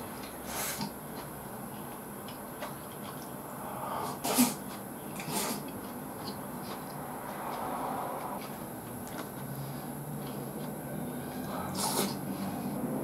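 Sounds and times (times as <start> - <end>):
man chewing food: 0.0 - 13.0.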